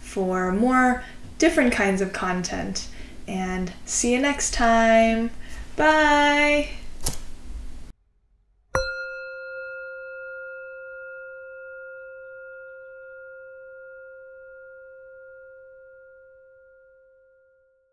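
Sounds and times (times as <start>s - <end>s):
singing bowl ringing: 8.8s - 17.9s.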